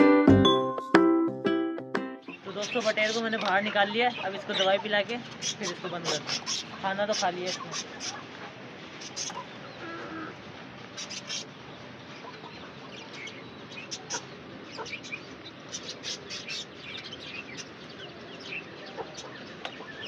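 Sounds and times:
chickens clucking: 0:02.3 - 0:16.7, 0:18.6 - 0:20.0.

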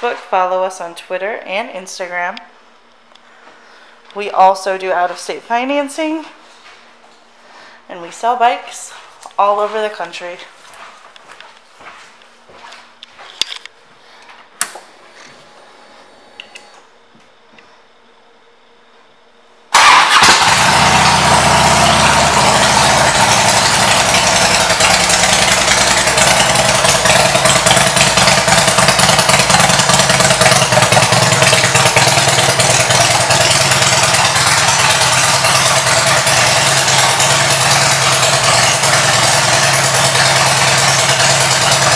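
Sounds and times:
motorcycle engine starting and idling: 0:19.7 - 0:41.9.

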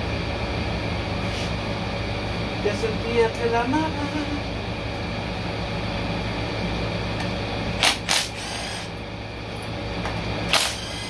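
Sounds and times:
steady low hum: 0:00.0 - 0:11.0
cordless power tool spinning bolts: 0:07.8 - 0:08.9, 0:10.5 - 0:11.0.

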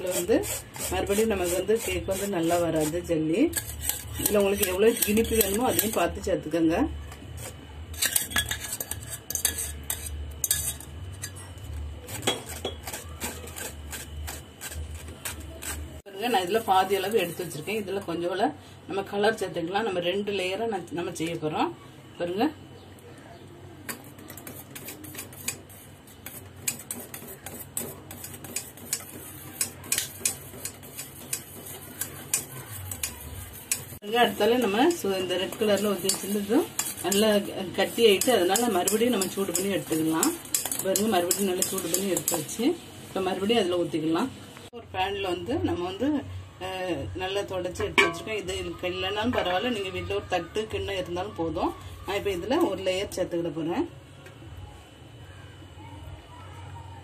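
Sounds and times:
spoon scraping a metal strainer: 0:00.0 - 0:06.2, 0:07.1 - 0:17.8, 0:23.9 - 0:42.6, 0:47.8 - 0:49.6
metal utensil clinking on pot: 0:03.5 - 0:06.1, 0:07.9 - 0:11.6, 0:28.1 - 0:34.0, 0:34.6 - 0:42.5, 0:47.8 - 0:48.4.

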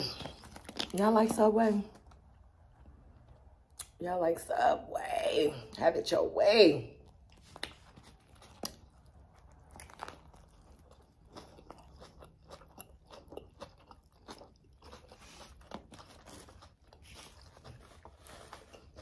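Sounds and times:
person chewing crunchy sandwich: 0:00.0 - 0:01.0, 0:07.0 - 0:19.0.

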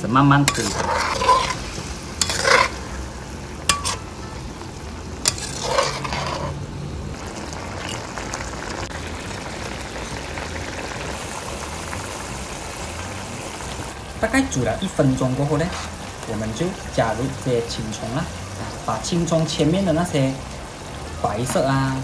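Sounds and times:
sauce sizzling and simmering: 0:00.0 - 0:22.0
metal spatula scraping a wok: 0:00.4 - 0:03.1, 0:03.7 - 0:04.2, 0:05.2 - 0:06.6.

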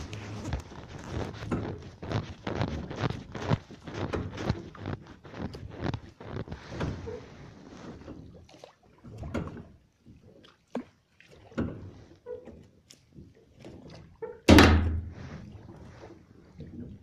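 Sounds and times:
water splashing: 0:00.0 - 0:17.0
boat knocking: 0:14.4 - 0:15.1
loud thump: 0:14.5 - 0:15.1.

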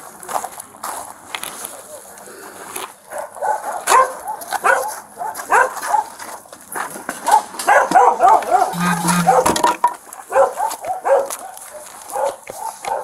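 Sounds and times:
dogs barking: 0:03.1 - 0:06.2, 0:07.2 - 0:13.0.

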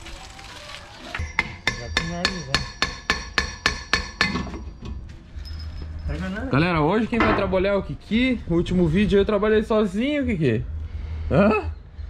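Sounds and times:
hammer striking metal: 0:01.2 - 0:05.0.

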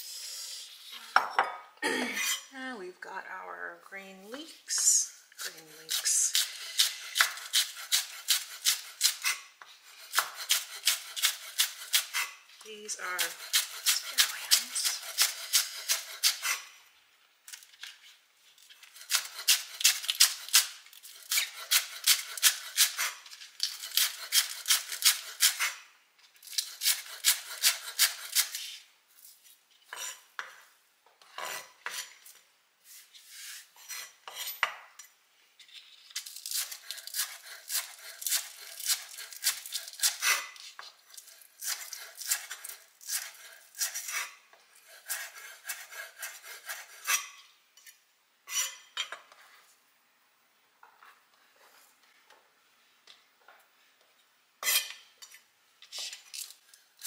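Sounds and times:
knife chopping on wooden board: 0:10.1 - 0:12.2.

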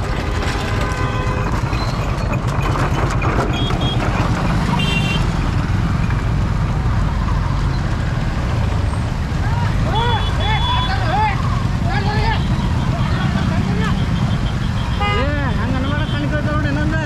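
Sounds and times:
motorcycle engines rumbling: 0:00.0 - 0:17.0
horns beeping: 0:03.4 - 0:05.4, 0:09.8 - 0:11.1, 0:12.2 - 0:16.4.

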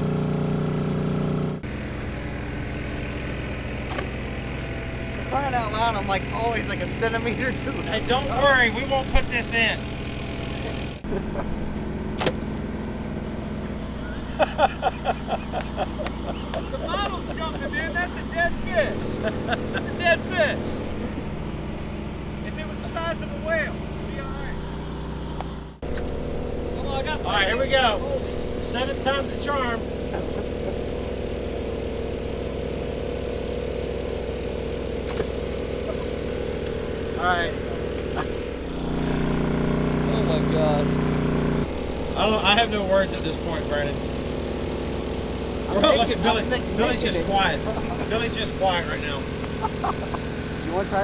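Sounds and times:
boat engine low hum: 0:00.0 - 0:51.0
sharp click: 0:03.8 - 0:04.2, 0:12.2 - 0:12.5, 0:35.0 - 0:35.4.

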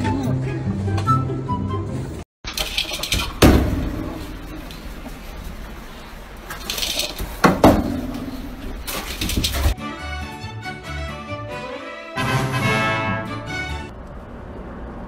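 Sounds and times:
soft hissy rustling: 0:04.1 - 0:07.5.

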